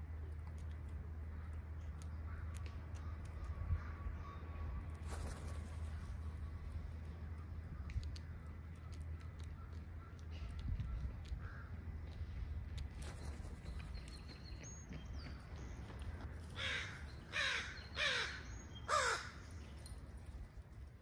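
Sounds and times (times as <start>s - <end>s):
crow cawing: 16.6s - 19.4s.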